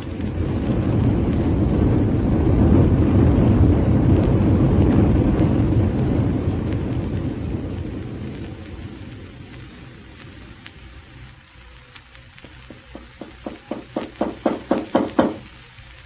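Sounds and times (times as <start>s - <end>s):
rocket deep rushing rumble: 0.0s - 11.6s.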